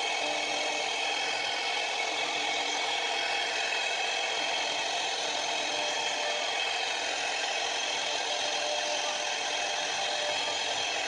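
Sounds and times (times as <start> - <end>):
router spindle high whine: 0.0 - 11.0.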